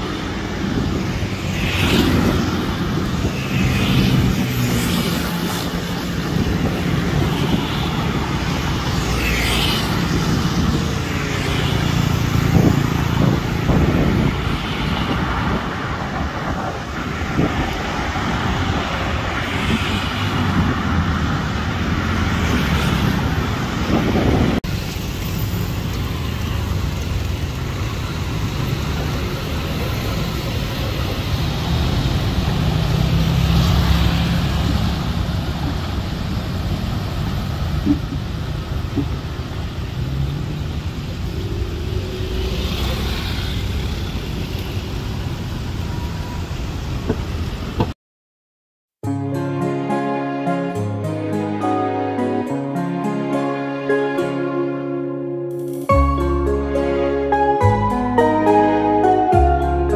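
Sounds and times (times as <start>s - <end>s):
road traffic: 0.0s - 48.0s, 49.0s - 59.9s
soft music: 49.0s - 59.9s.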